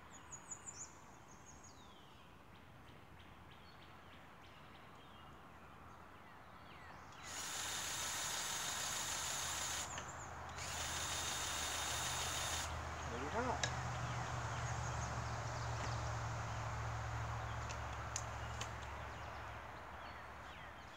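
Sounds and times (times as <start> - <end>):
faint birdsong: 0.0 - 20.9
grease gun motor whining: 7.2 - 13.6.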